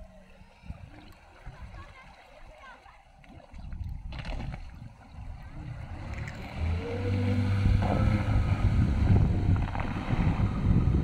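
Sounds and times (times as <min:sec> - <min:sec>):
water wash from hull: 0:00.0 - 0:11.0
wind on microphone: 0:03.3 - 0:11.0
electric outboard motor humming: 0:05.2 - 0:11.0.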